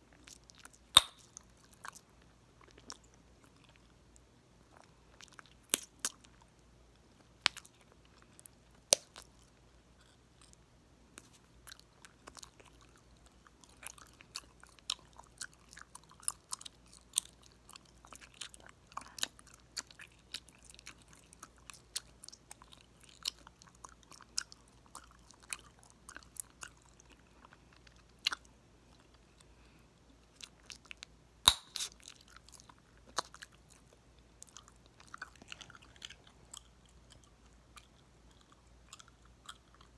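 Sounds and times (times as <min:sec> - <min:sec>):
gum pops: 0:01.0 - 0:01.4, 0:31.4 - 0:32.0
wet chewing clicks and smacks: 0:11.2 - 0:29.4, 0:30.2 - 0:39.9.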